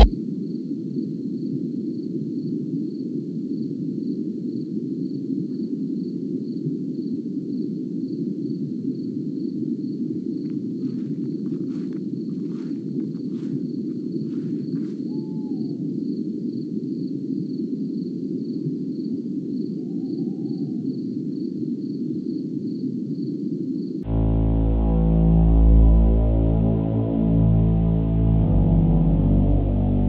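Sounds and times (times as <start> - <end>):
insect chirping: 1.4 - 24.0
low steady rushing noise: 24.0 - 30.0
music with low drone: 24.0 - 30.0.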